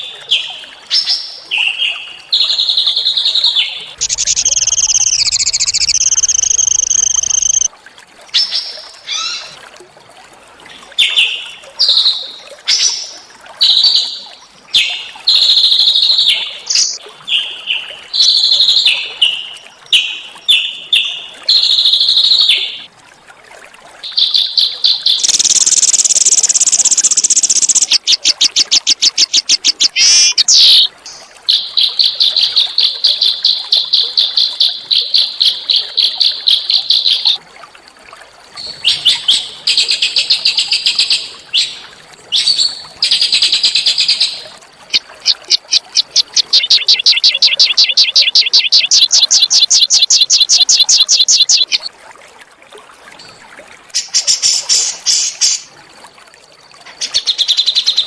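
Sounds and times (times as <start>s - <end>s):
songbird chirping and trilling: 0.3s - 7.7s, 15.8s - 19.6s, 24.1s - 32.6s, 34.5s - 37.4s, 42.4s - 51.9s.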